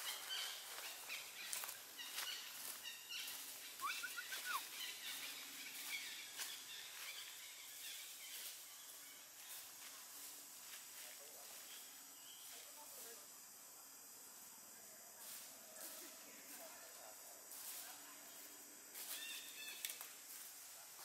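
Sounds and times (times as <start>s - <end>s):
bird chirps: 0.0s - 9.6s.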